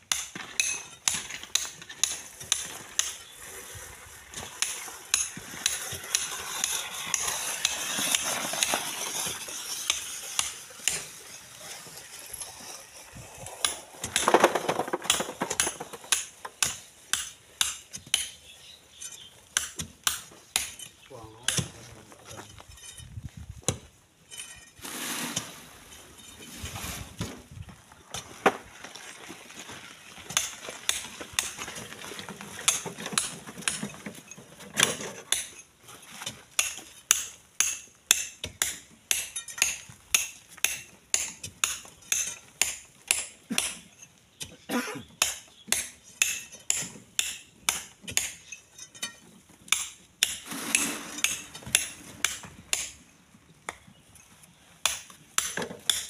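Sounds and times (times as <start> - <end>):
sand and grit pouring down: 2.8 - 13.8, 24.8 - 27.2.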